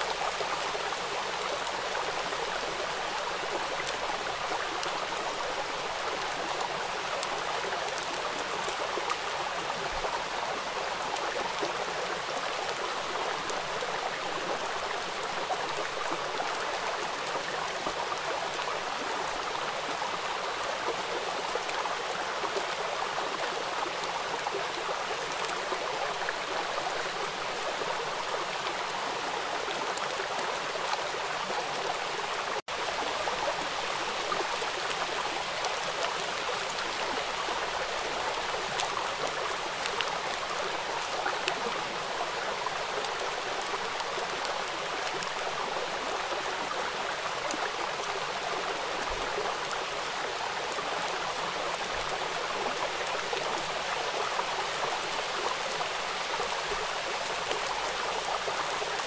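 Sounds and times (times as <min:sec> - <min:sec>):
stream water rushing: 0:00.0 - 0:59.0.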